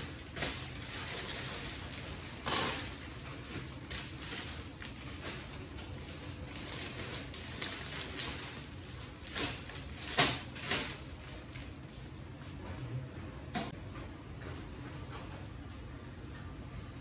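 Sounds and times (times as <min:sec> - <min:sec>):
sharp paper crackles: 0:00.0 - 0:11.9
paper wrapping rustling: 0:00.0 - 0:12.1.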